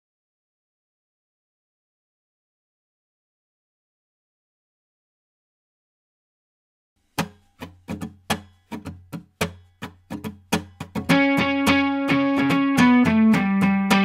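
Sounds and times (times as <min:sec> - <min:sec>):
guitar music: 0:07.1 - 0:14.0.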